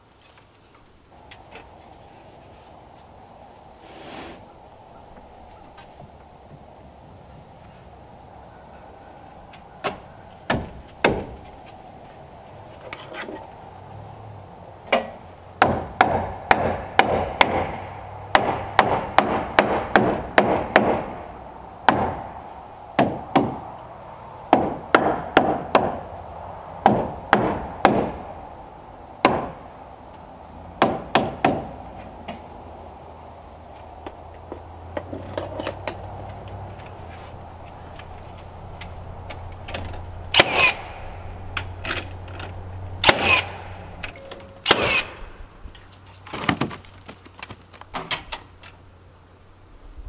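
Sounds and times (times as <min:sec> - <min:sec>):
hammer driving nails into wood: 0:14.9 - 0:21.1, 0:40.3 - 0:40.8, 0:43.0 - 0:43.6.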